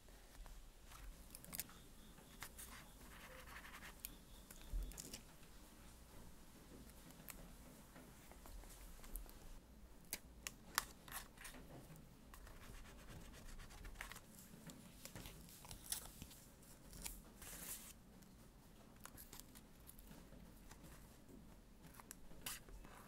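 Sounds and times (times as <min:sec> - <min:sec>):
paper rustling: 0:12.3 - 0:18.0.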